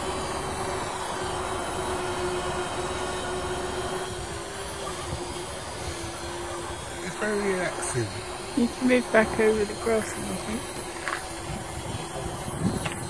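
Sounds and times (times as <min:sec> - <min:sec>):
drone propellers humming: 0:00.0 - 0:13.0
wind rumbling on microphone: 0:04.0 - 0:13.0.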